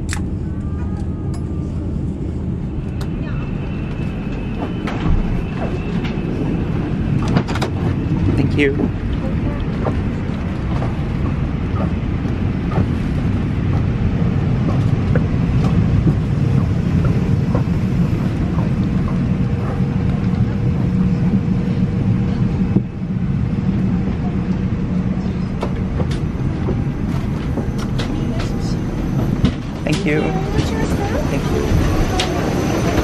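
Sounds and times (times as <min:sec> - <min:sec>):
cabin ventilation rumble: 0:00.0 - 0:33.0
faint voices: 0:20.4 - 0:33.0.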